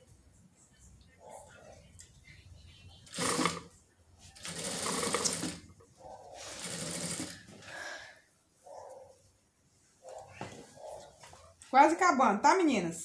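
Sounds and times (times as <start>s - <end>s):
sewing machine stitching: 3.1s - 3.7s, 4.4s - 5.7s, 6.5s - 7.4s.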